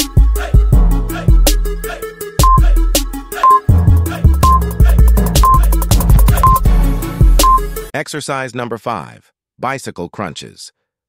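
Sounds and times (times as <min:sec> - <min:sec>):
electronic hip-hop music: 0:00.0 - 0:07.9
short high beep: 0:02.4 - 0:02.6, 0:03.4 - 0:03.7.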